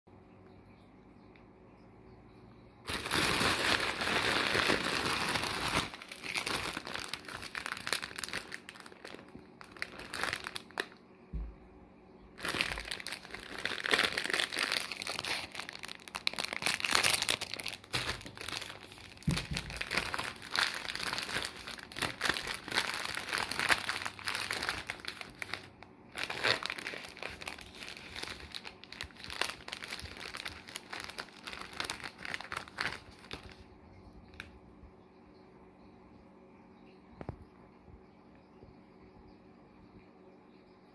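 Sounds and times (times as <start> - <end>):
plastic wrappers crinkling: 2.8 - 11.0, 12.4 - 33.7.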